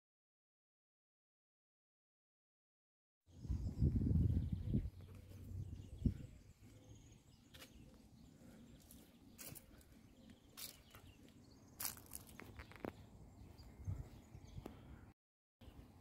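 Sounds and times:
low rumble on microphone: 0:03.3 - 0:06.7.

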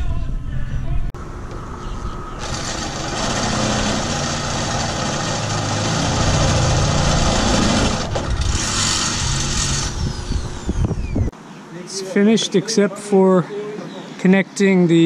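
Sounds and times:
cordless drill running: 0:02.4 - 0:11.1.

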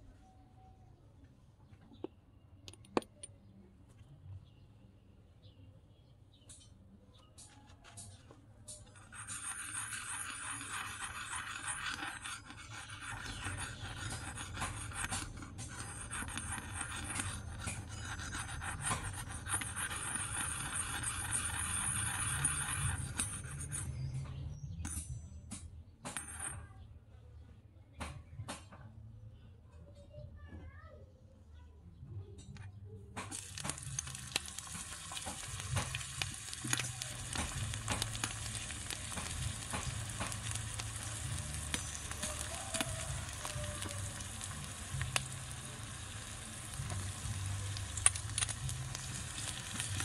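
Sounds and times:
oil sizzling in a wok: 0:33.4 - 0:50.0.

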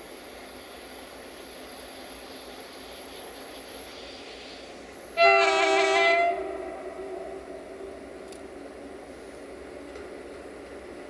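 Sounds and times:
locomotive horn blast: 0:05.2 - 0:07.4.

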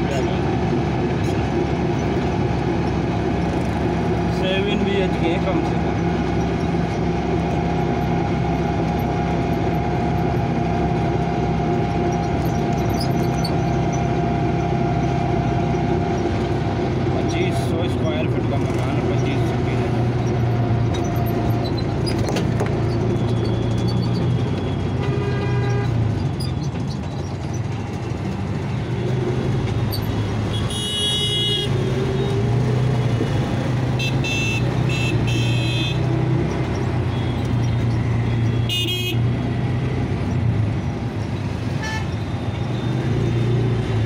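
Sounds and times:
road and wind noise: 0:00.0 - 0:44.0
vehicle engine hum: 0:00.0 - 0:44.0
vehicle horns tooting: 0:24.7 - 0:26.0, 0:30.5 - 0:32.3, 0:34.0 - 0:36.1, 0:37.1 - 0:39.4, 0:41.7 - 0:42.9.

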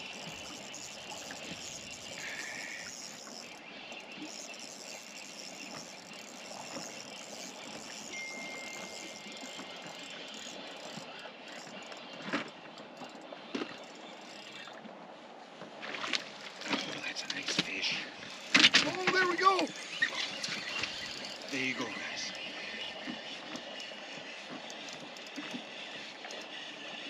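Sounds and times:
water around a boat: 0:00.0 - 0:27.0
wind: 0:00.0 - 0:27.0
faint thin high tone: 0:08.1 - 0:09.3.

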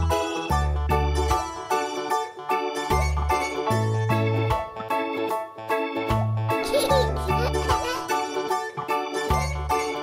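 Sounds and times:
plucked notes: 0:06.6 - 0:10.0.

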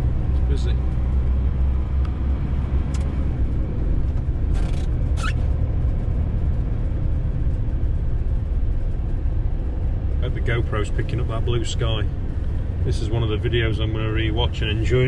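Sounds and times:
van engine and tyres rumbling: 0:00.0 - 0:15.0
brief high squeaks: 0:04.6 - 0:05.5.

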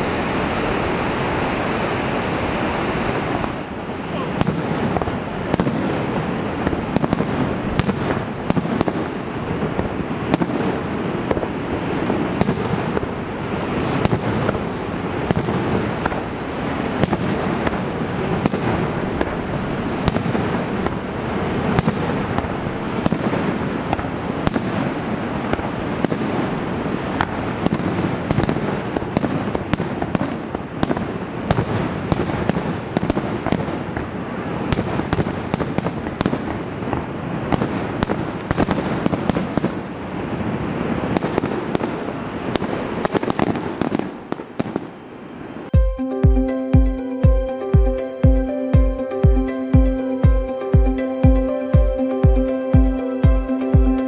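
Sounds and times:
fireworks bursting and crackling: 0:00.0 - 0:54.0.

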